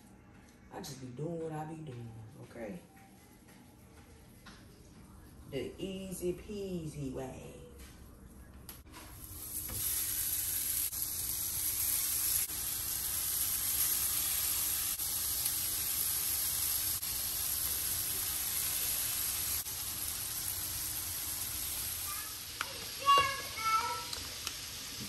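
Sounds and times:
burger patties sizzling on griddle: 0:09.2 - 0:25.0.

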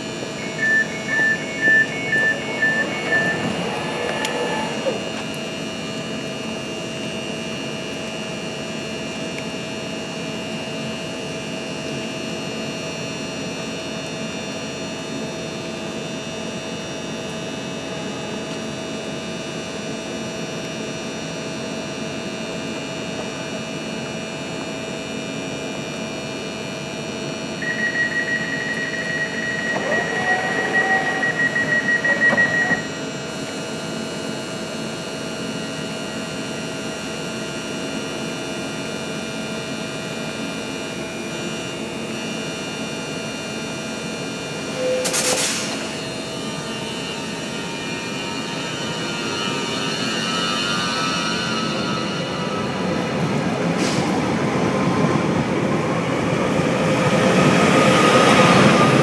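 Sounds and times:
train equipment humming: 0:00.0 - 0:09.7, 0:26.1 - 0:59.0
door warning beeps: 0:00.1 - 0:05.3, 0:27.6 - 0:33.1, 0:44.7 - 0:52.6
sliding door closing: 0:03.1 - 0:05.3.

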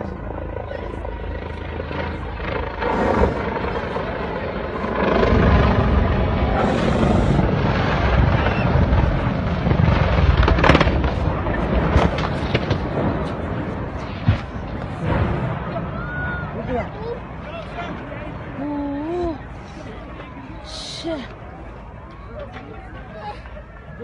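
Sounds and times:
low-flying aircraft engine drone: 0:00.0 - 0:24.0
sharp crack: 0:06.6 - 0:16.1.

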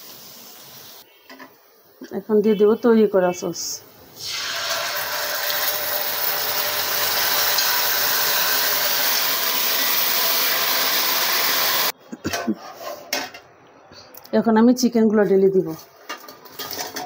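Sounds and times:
sauce sizzling in a wok: 0:00.0 - 0:01.2, 0:04.2 - 0:11.9.

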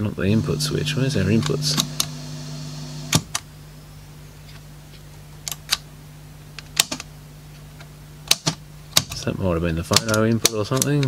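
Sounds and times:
low amplifier hum: 0:00.0 - 0:09.9
amplifier switches clicking: 0:00.8 - 0:02.2.

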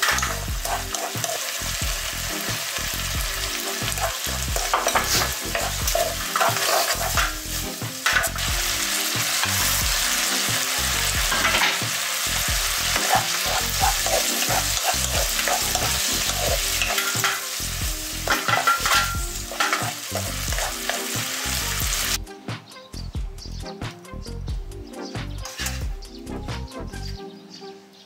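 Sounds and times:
wooden spatula scraping a pan: 0:00.0 - 0:01.5, 0:03.8 - 0:08.5, 0:12.9 - 0:17.5
food sizzling in a wok: 0:00.0 - 0:22.2, 0:25.4 - 0:25.9.

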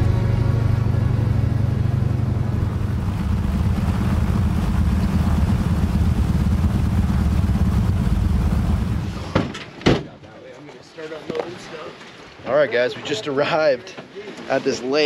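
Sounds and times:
aircraft engine deep drone: 0:00.0 - 0:09.4
rush of water spray: 0:02.8 - 0:09.4.

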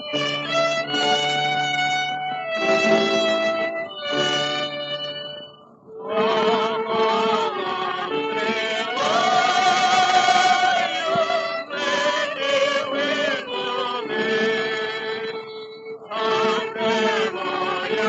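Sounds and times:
orchestral accompaniment: 0:00.0 - 0:18.0
vocal quartet singing: 0:05.9 - 0:18.0.

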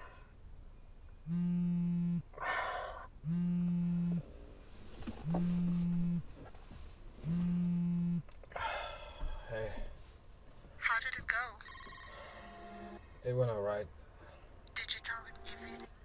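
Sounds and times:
buzzy electronic warning beeps: 0:01.2 - 0:02.3, 0:03.2 - 0:04.2, 0:05.2 - 0:06.3, 0:07.2 - 0:08.2, 0:11.6 - 0:13.2
sharp breath: 0:02.4 - 0:03.1.

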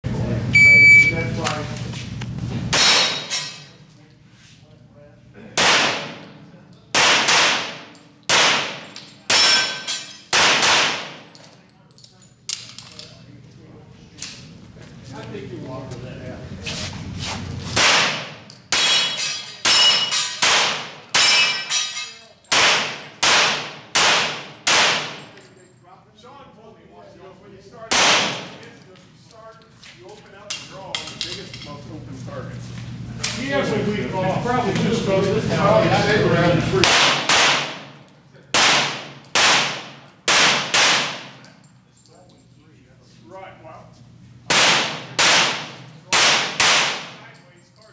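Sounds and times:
handgun shots echoing: 0:02.7 - 0:03.5, 0:05.6 - 0:06.3, 0:06.9 - 0:11.2, 0:17.8 - 0:21.7, 0:22.5 - 0:25.3, 0:27.9 - 0:28.5, 0:36.8 - 0:37.9, 0:38.5 - 0:41.5, 0:44.5 - 0:47.2
steel targets ringing: 0:07.2 - 0:11.2, 0:18.3 - 0:20.4, 0:21.0 - 0:25.4.

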